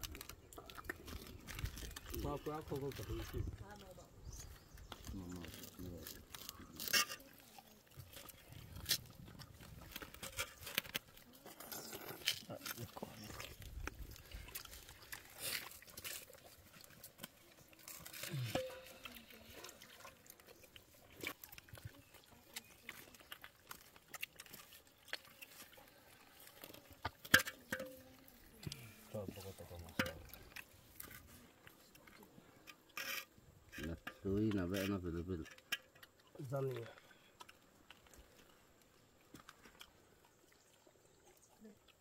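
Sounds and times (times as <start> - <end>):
chewing: 0.0 - 33.2, 35.6 - 42.0.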